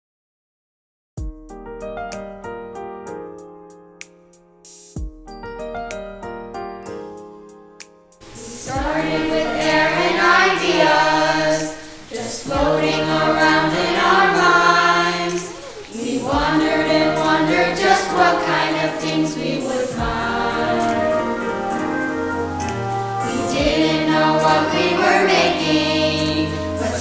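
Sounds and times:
musical accompaniment: 0:01.2 - 0:27.0
piano notes: 0:01.4 - 0:27.0
young voices singing: 0:08.2 - 0:27.0.

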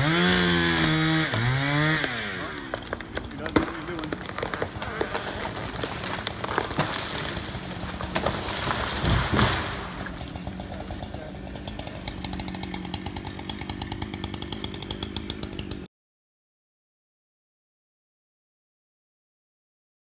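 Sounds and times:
tree falling crash: 0:00.0 - 0:15.7
wood cracking: 0:00.0 - 0:15.8
chainsaw idling: 0:00.0 - 0:15.9.

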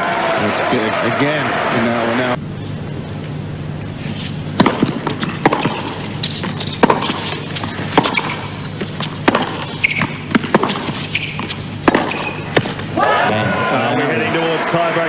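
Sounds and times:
tennis ball bouncing on court: 0:04.6 - 0:12.9
tennis ball hit by rackets: 0:04.6 - 0:12.9.

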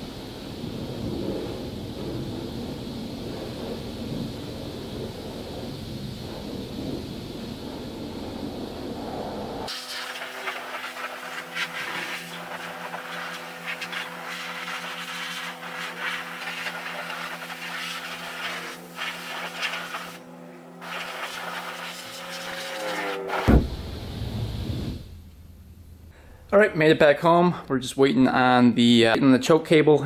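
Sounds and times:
steady pump hum: 0:00.0 - 0:28.0
pressure washer spraying water: 0:09.7 - 0:20.2, 0:20.8 - 0:25.0.

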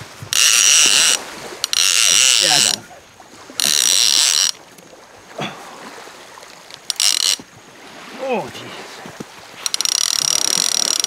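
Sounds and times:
fishing reel ratcheting: 0:00.3 - 0:02.8, 0:03.6 - 0:04.6, 0:06.6 - 0:07.5, 0:09.6 - 0:11.0.

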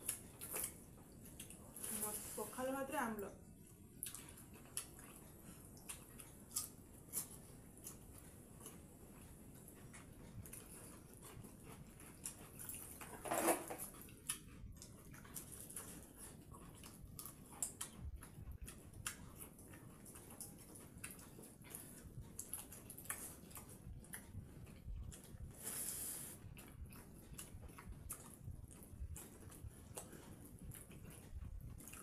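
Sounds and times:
chewing: 0:00.0 - 0:02.5, 0:03.4 - 0:32.0.

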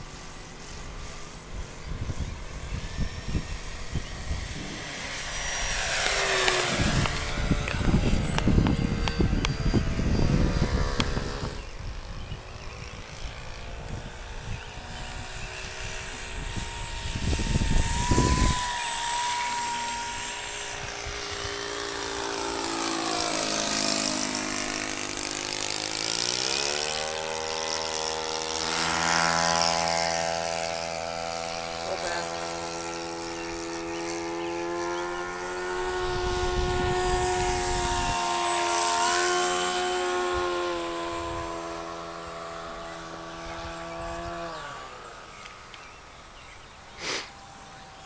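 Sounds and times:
model airplane motor whining: 0:00.0 - 0:48.0
wind rumble on microphone: 0:00.7 - 0:22.6, 0:35.1 - 0:44.8.

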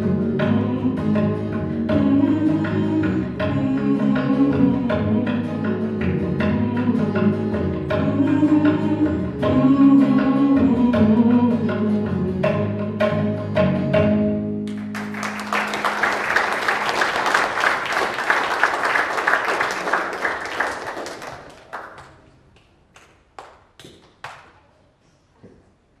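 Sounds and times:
band playing with tabla: 0:00.0 - 0:21.2
audience applauding: 0:14.7 - 0:24.5.

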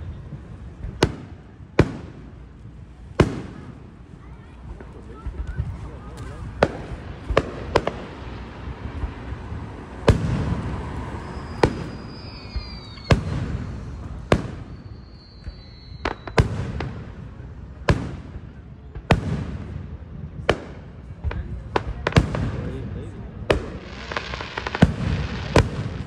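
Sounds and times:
fireworks bangs: 0:00.0 - 0:26.0
firework whistles: 0:04.8 - 0:17.8, 0:23.6 - 0:26.0.

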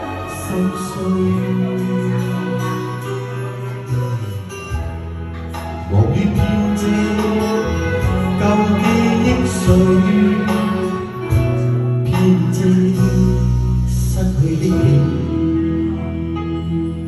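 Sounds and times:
pop ballad backing music: 0:00.0 - 0:17.0.

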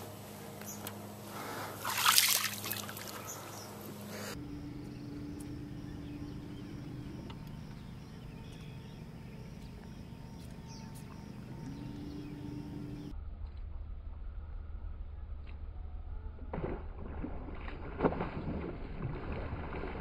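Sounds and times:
steady low hum: 0:00.0 - 0:20.0
loud water splash: 0:01.8 - 0:03.2.

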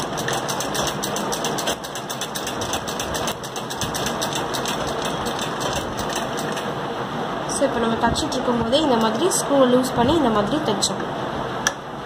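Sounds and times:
sewing machine clatter: 0:00.0 - 0:06.7.

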